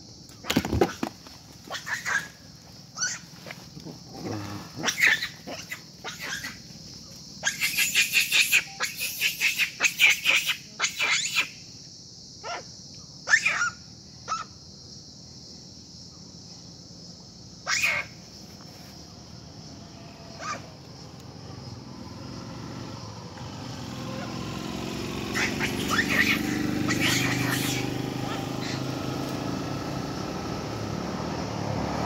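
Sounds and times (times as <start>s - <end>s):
monkey squeals and chirps: 1.7s - 3.4s, 4.8s - 6.6s, 7.4s - 11.6s, 13.2s - 14.5s, 17.6s - 18.2s, 20.4s - 20.7s, 25.2s - 29.0s.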